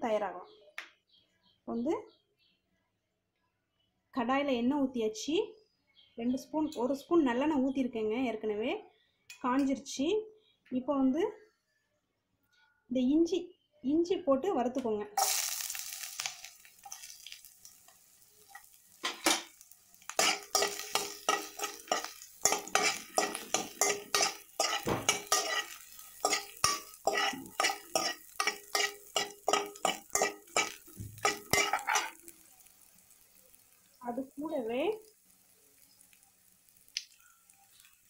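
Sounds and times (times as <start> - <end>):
ginger sizzling in hot oil: 15.2 - 38.0
ladle scraping and clinking pan: 20.2 - 32.2.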